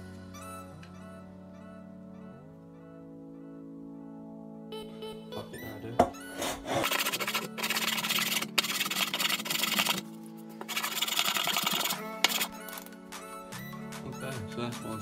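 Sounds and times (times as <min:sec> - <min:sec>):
background music: 0:00.0 - 0:15.0
hand plane cutting wood: 0:06.4 - 0:10.0, 0:10.6 - 0:12.9.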